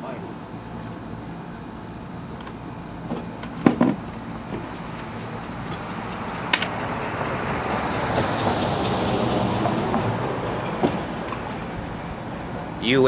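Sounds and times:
vehicle passing by: 4.3s - 13.0s.

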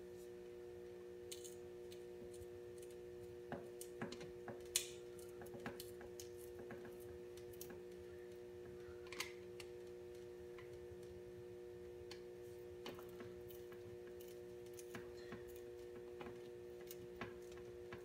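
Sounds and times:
electrical hum: 0.0s - 18.0s
hand tools clicking and tapping: 1.3s - 7.9s.

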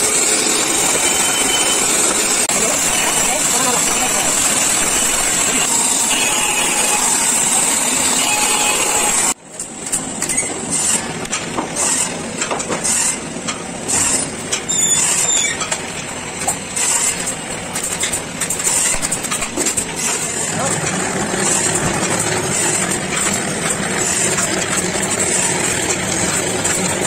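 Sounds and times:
band saw cutting board: 0.0s - 27.0s
workshop knocks and clicks: 9.5s - 27.0s.

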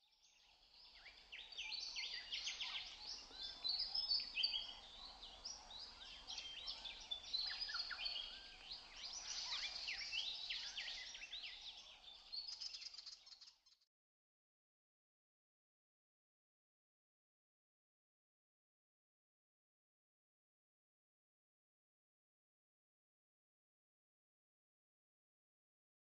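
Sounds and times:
songbirds chirping and trilling: 0.0s - 13.8s.

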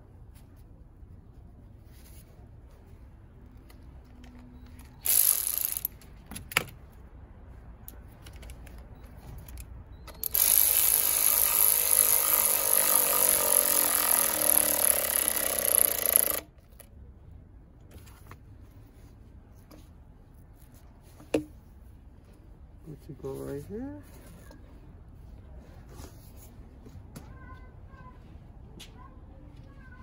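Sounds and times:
electric ratchet running: 5.0s - 5.9s, 10.2s - 16.8s.

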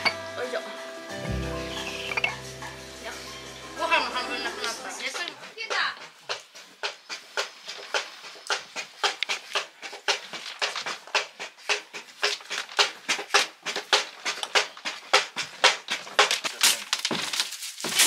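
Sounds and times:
dried pods cracking and rattling: 7.2s - 18.0s.

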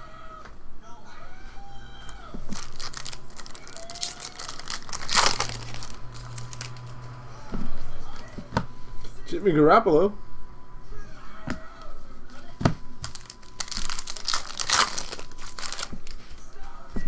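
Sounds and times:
foil wrapper crinkling and tearing: 2.5s - 7.0s, 13.0s - 16.3s.

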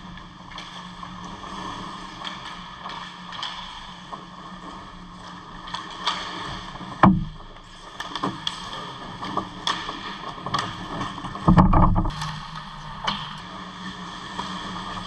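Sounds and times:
heavy knock: 7.0s - 7.4s, 11.5s - 13.4s.

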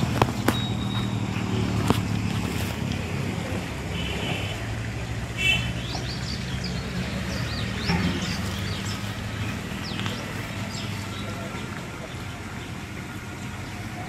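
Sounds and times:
low motor hum: 0.0s - 14.0s
small birds chirping: 5.4s - 14.0s.

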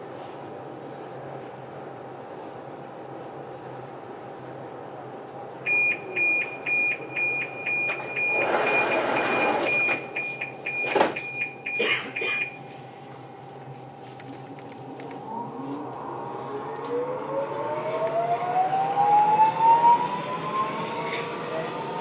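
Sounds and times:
station platform hum: 0.0s - 22.0s
electronic warning beeps: 5.7s - 11.8s, 12.4s - 12.7s, 14.0s - 18.5s.

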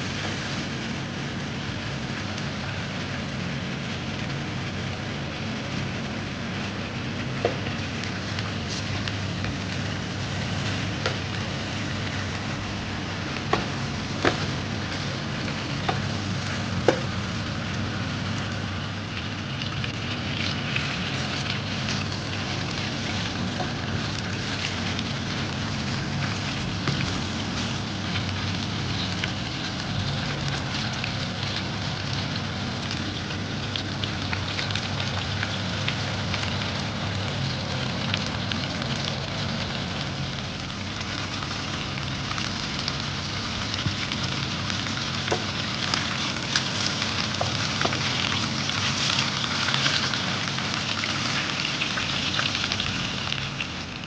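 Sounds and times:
meat sizzling in frying pan: 0.0s - 54.0s
small crackling pops: 6.6s - 54.0s.

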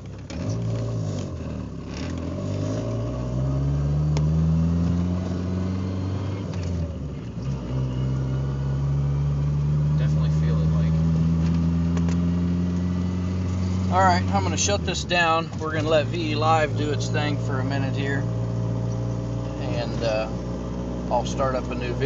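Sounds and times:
car engine accelerating: 0.0s - 22.0s.

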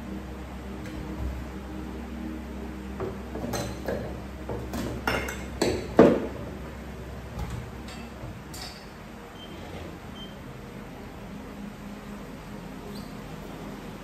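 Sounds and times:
glass bottles clinking: 3.4s - 6.3s, 7.8s - 9.0s.

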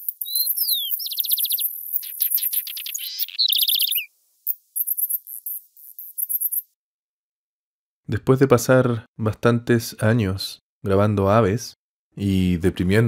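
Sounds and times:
birds calling: 0.0s - 6.6s
insect chirping: 0.0s - 6.8s.

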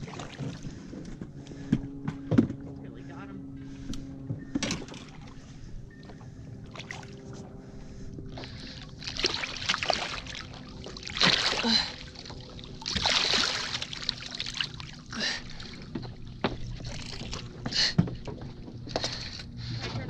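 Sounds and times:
fish splashing at surface: 9.0s - 15.8s.

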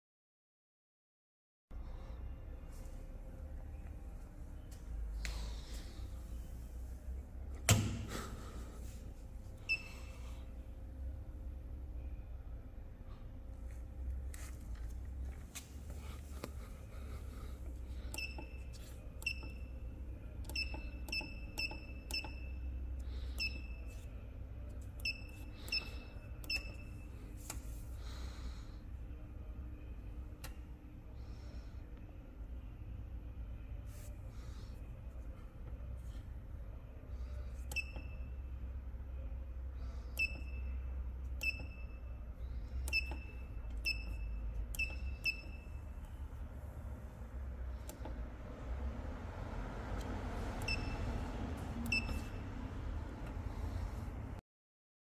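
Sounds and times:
low hum: 1.7s - 54.4s
keypad beeps: 9.7s - 10.0s, 18.1s - 19.8s, 20.5s - 22.7s, 23.4s - 24.0s, 25.0s - 27.1s, 37.7s - 38.4s, 40.2s - 40.8s, 41.4s - 42.1s, 42.8s - 45.8s, 50.6s - 51.0s, 51.9s - 52.4s.

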